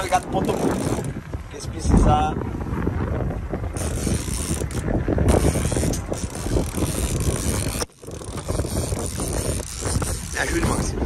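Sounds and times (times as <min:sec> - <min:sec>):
boat engine running: 0:00.0 - 0:01.5, 0:03.4 - 0:11.0
wind buffeting microphone: 0:00.0 - 0:11.0.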